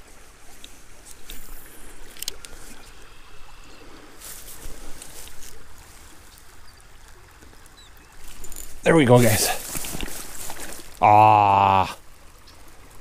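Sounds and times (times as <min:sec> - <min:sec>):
creek running over rocks: 0:00.0 - 0:13.0
handling clicks and rustles: 0:08.2 - 0:11.0.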